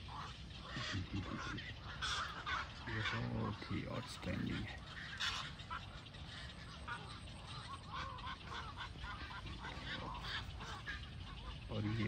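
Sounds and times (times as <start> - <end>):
waterbirds calling: 0.0 - 12.0.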